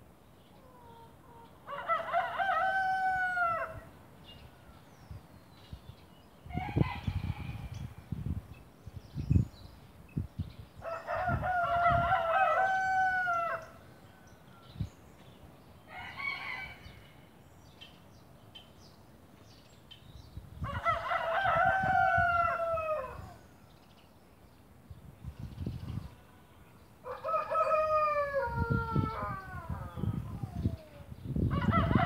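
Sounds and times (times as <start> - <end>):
rooster crowing: 1.7 - 3.8, 10.8 - 14.7, 20.7 - 23.4, 27.0 - 30.3, 31.5 - 32.0.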